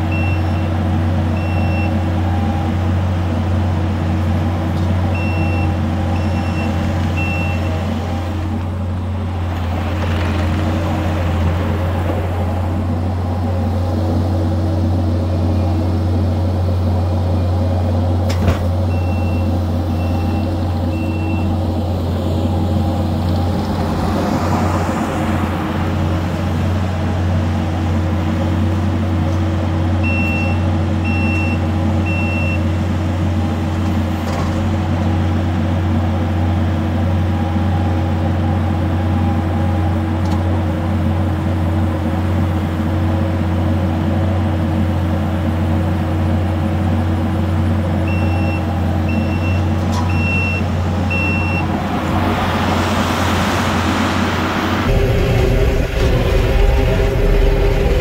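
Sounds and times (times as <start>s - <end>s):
diesel engine running: 0.0s - 58.0s
backup alarm beeps: 5.2s - 7.8s, 18.9s - 21.5s, 30.0s - 32.6s, 48.1s - 51.7s.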